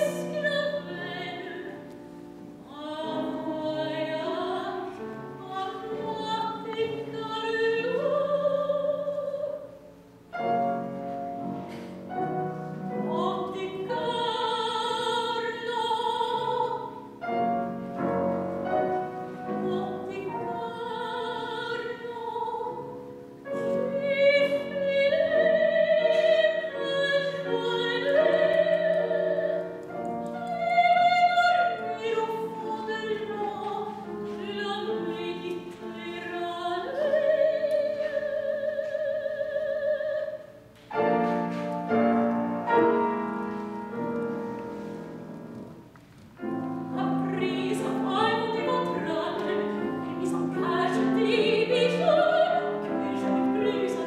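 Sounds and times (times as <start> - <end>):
operatic soprano singing: 0.0 - 1.8, 2.7 - 9.8, 12.9 - 17.0, 19.4 - 23.0, 23.6 - 40.6, 46.8 - 54.0
piano accompaniment: 0.0 - 54.0.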